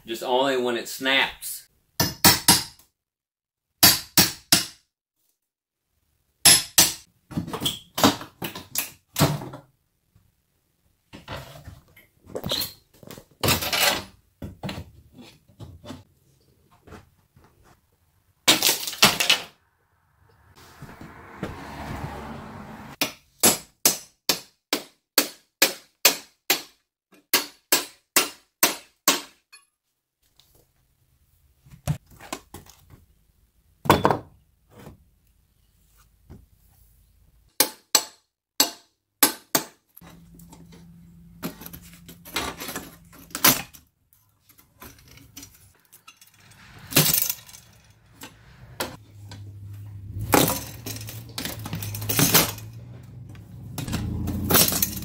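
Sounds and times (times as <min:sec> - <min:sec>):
hammer striking steel pry bar: 0:02.0 - 0:02.8, 0:03.8 - 0:04.8, 0:06.4 - 0:07.1, 0:37.6 - 0:39.8
scraping: 0:44.3 - 0:55.0.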